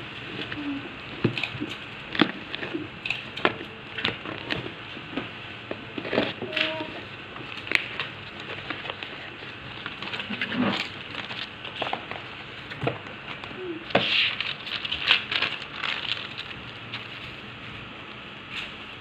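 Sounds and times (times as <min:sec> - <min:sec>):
cardboard box crackling: 0:06.0 - 0:17.2.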